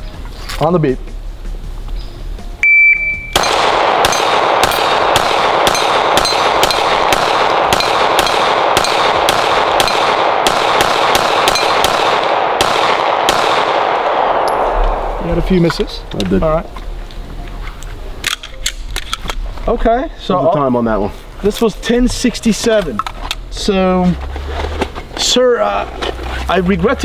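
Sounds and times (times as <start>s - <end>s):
shot timer beep: 2.6s - 3.4s
pistol shots: 3.3s - 15.6s
steel targets ringing: 5.6s - 7.0s, 11.5s - 11.8s.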